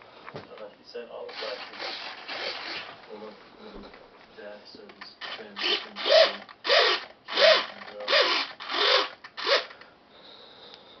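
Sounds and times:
servo whirring: 1.3 - 3.1, 5.2 - 9.8.

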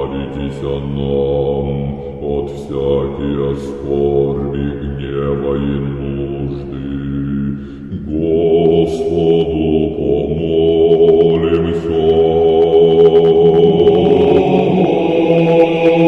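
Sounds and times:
low drone: 0.0 - 16.0
voices chanting held notes: 7.9 - 16.0.

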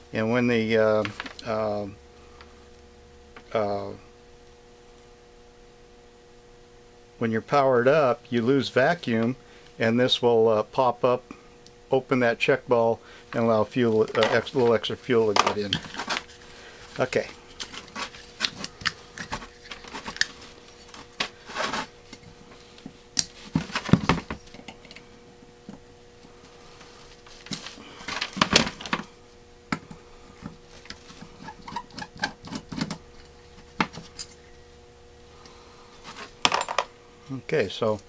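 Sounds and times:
faint steady hum: 0.0 - 38.0
metal parts clattering on workbench: 36.1 - 36.9.

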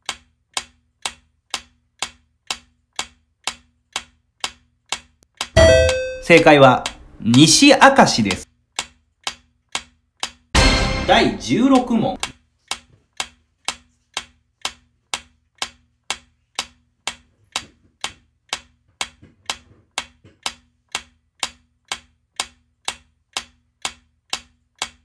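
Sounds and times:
countdown timer ticking: 5.6 - 8.4, 10.6 - 12.3.

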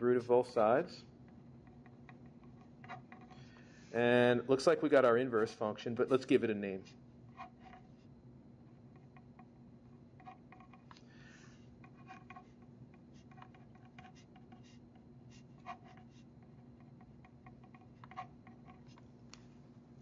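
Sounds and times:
low steady hum: 0.0 - 20.0
pen scratching on paper: 11.9 - 19.0.

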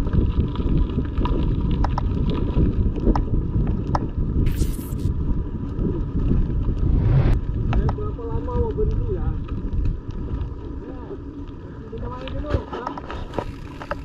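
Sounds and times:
wind buffeting microphone: 0.0 - 4.5, 5.1 - 10.7
mountain bike riding noise: 0.0 - 14.0.

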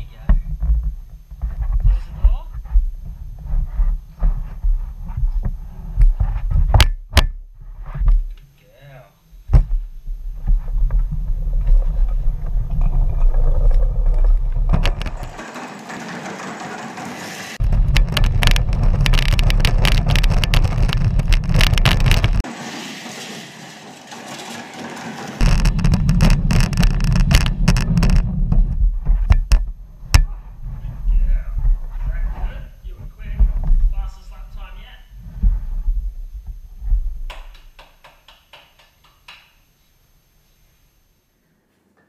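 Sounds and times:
plastic toy wheels rumbling: 10.6 - 28.8
sharp clicks and knocks: 12.7 - 22.5, 23.8 - 30.3, 37.3 - 39.6.

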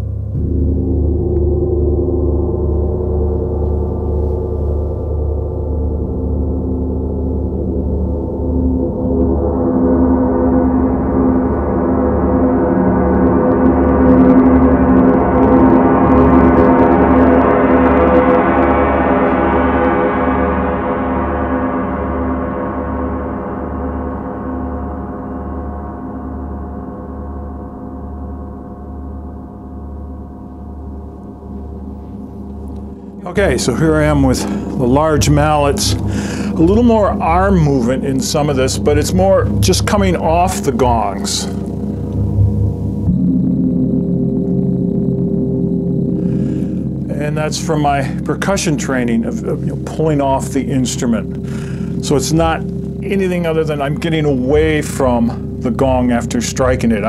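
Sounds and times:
gongs ringing: 0.0 - 57.0
slow low pulse: 0.0 - 57.0.

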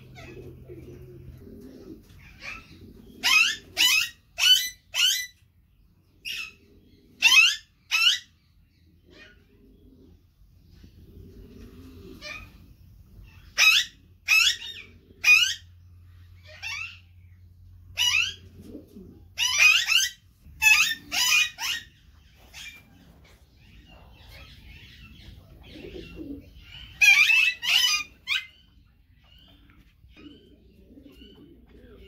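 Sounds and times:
parakeets screeching: 2.2 - 5.4, 7.2 - 8.4, 12.1 - 12.6, 13.2 - 18.5, 19.3 - 30.5.

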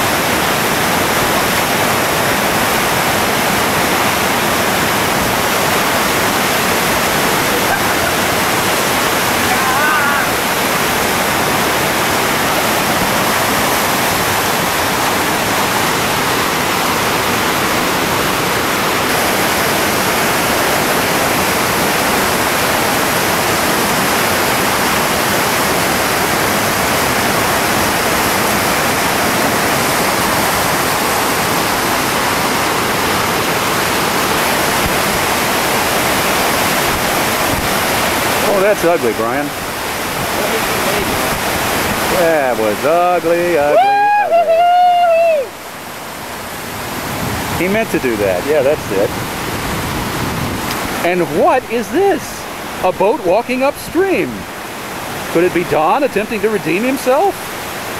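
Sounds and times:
river water rushing over boulders: 0.0 - 57.9.

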